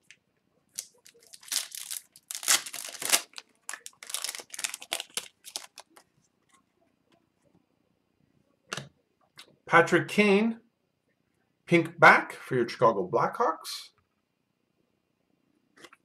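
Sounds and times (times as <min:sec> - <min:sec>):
foil wrapper crinkling and tearing: 0:00.8 - 0:06.0.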